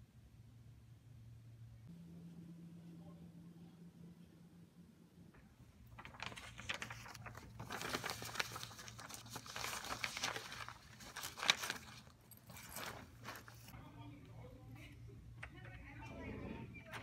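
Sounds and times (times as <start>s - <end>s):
paper and backpack rustling: 5.8s - 13.8s.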